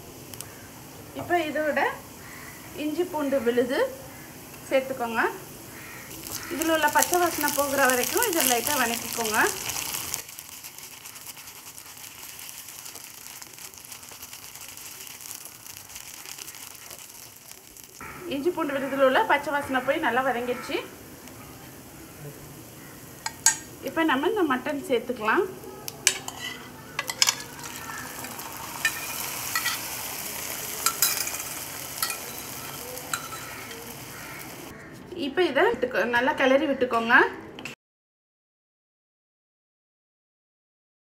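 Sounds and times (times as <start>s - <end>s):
onions sizzling in hot oil: 0.0s - 34.7s
wooden spatula stirring: 6.1s - 18.0s, 26.0s - 34.7s
metal spoon scraping cookware: 26.0s - 30.0s, 30.8s - 33.9s.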